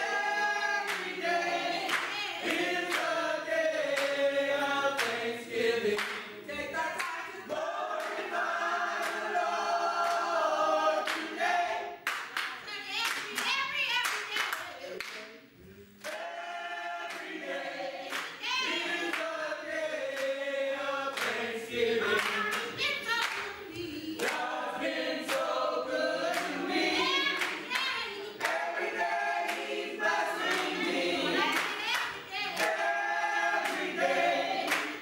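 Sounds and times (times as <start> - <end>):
church choir singing: 0.0 - 12.0, 15.6 - 22.8, 23.6 - 35.0
hand claps: 0.8 - 1.2, 1.8 - 3.2, 3.9 - 4.2, 5.0 - 5.3, 5.9 - 6.3, 11.0 - 11.3, 12.0 - 15.3, 16.0 - 16.3, 17.1 - 17.4, 18.1 - 18.4, 20.1 - 20.4, 21.1 - 24.5, 25.3 - 25.5, 27.2 - 28.7, 29.4 - 29.8, 31.4 - 33.0, 33.6 - 35.0.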